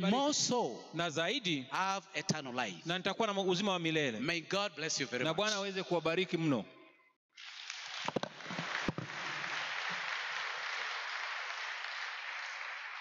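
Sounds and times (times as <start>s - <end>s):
congregation applauding: 7.4s - 13.0s.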